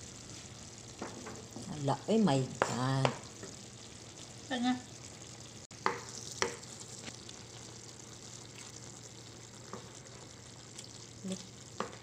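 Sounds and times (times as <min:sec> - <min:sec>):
food simmering in a pan: 0:00.0 - 0:12.0
wooden spoon knocking on pan: 0:01.0 - 0:01.7, 0:02.5 - 0:03.6, 0:05.8 - 0:06.6, 0:11.8 - 0:12.0.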